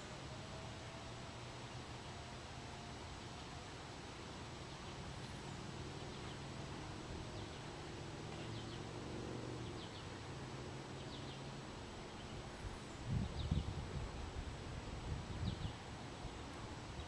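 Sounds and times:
distant warning siren wailing: 0.0s - 13.0s
outdoor hiss: 0.0s - 17.0s.

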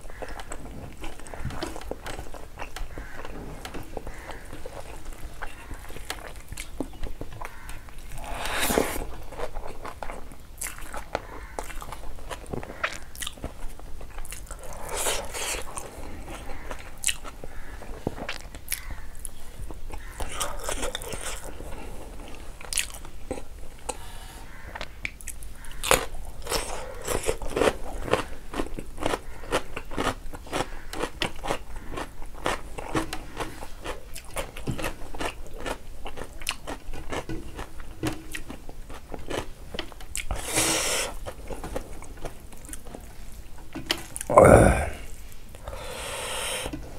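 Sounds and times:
person chewing food: 0.0s - 46.8s
wet mouth clicks and crunches: 8.2s - 15.9s.

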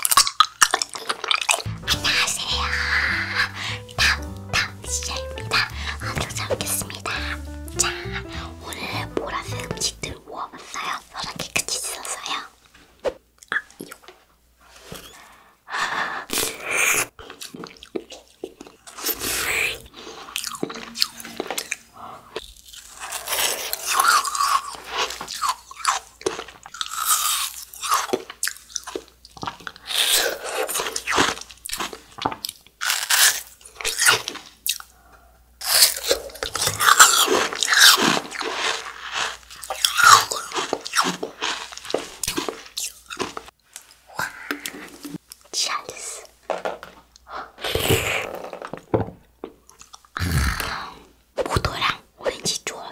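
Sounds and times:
crunchy chewing of frozen treat: 0.0s - 1.7s, 16.3s - 20.6s, 22.4s - 46.3s.

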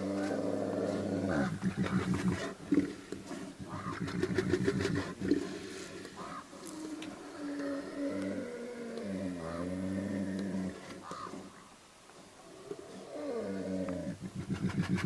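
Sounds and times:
bear growling: 0.0s - 3.0s, 6.2s - 11.6s, 12.6s - 15.0s.

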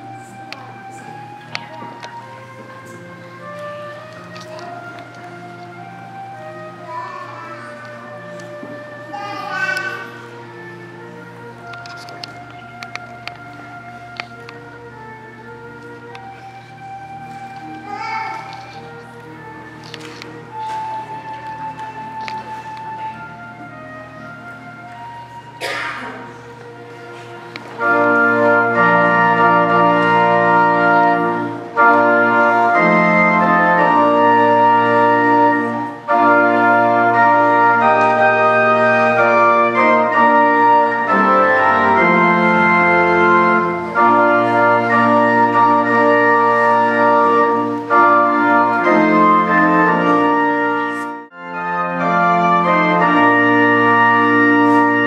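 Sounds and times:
organ playing held chords: 0.0s - 55.0s.

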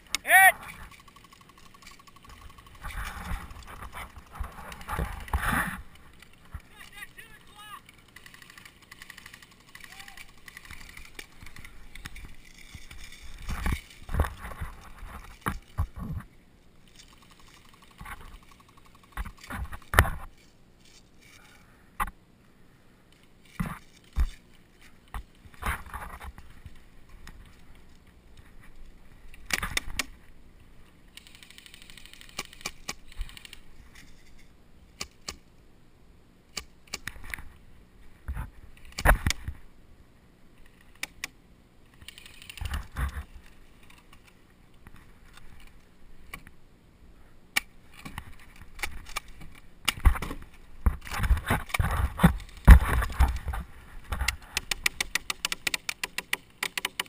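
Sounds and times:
gear clicks and knocks: 0.0s - 16.3s, 16.9s - 22.2s, 31.1s - 34.4s, 41.9s - 46.5s, 47.6s - 57.0s
rustling in dry grass: 0.0s - 21.9s, 47.1s - 54.8s.

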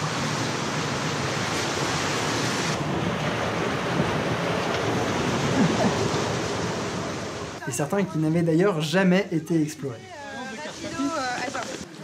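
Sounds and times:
steady rushing noise: 0.0s - 12.0s
person speaking: 7.6s - 11.9s.

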